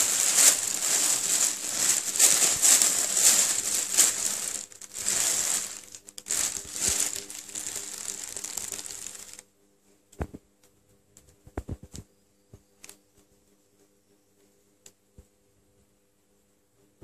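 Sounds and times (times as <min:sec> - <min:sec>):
plastic bag rustling: 0:00.0 - 0:09.4.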